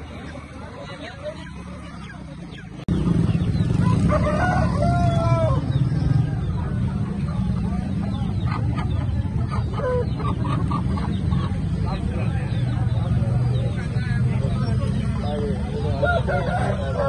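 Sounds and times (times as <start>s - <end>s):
chickens clucking: 0.0s - 17.0s
rooster crowing: 3.8s - 5.7s, 16.0s - 17.0s.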